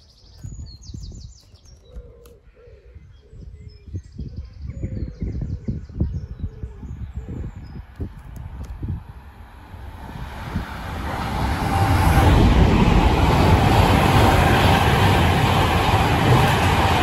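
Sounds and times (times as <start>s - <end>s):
train wheels on rail: 8.4s - 17.0s.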